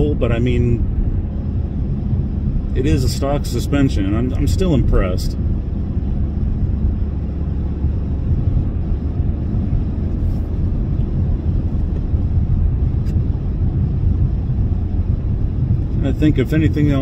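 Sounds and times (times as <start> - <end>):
car engine low rumble: 0.0 - 17.0
tyres on road: 0.0 - 17.0.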